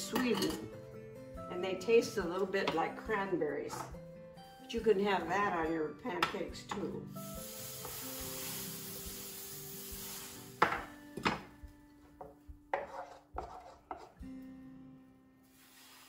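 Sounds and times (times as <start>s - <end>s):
soft background music: 0.0s - 16.0s
frying pan sizzling: 7.2s - 10.9s, 15.4s - 16.0s
pan knocking on stove: 10.6s - 11.5s.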